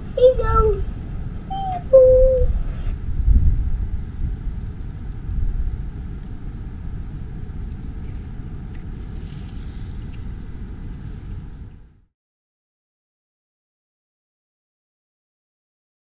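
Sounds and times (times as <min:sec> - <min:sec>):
wind buffeting microphone: 0:00.0 - 0:11.9
grass rustling: 0:08.0 - 0:11.6.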